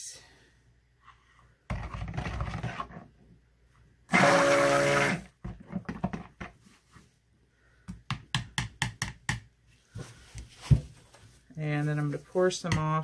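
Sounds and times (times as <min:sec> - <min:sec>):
stick blender motor whine: 0:04.1 - 0:05.3.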